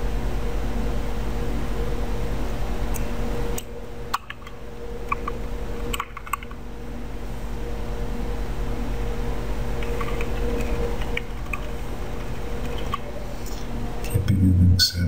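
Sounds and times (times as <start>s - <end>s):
steady electrical hum: 0.0s - 15.0s
keyboard keys clicking: 4.1s - 6.6s, 9.8s - 13.1s.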